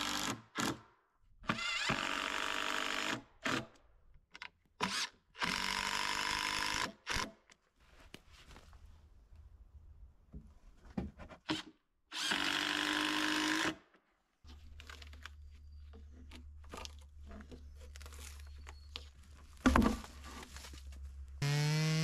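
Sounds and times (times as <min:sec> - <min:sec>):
power drill running: 0:21.4 - 0:22.0.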